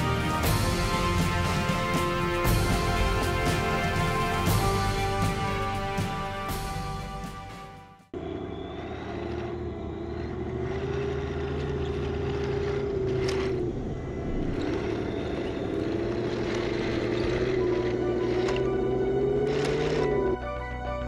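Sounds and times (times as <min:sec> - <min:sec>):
toy tank motors whining: 0:08.3 - 0:20.4.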